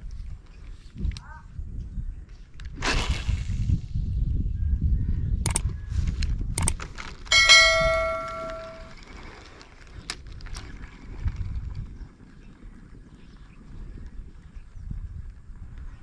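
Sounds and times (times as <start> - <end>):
low wind rumble on microphone: 0.0 - 16.0
sharp mouse clicks: 5.5 - 5.7, 6.6 - 6.8
bright bell ding: 7.3 - 8.9.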